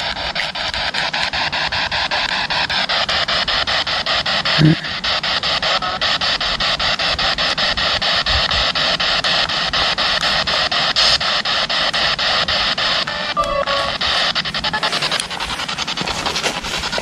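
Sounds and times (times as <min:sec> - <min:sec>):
pulsing radio static: 0:00.0 - 0:17.0
brief radio tones: 0:13.0 - 0:15.3.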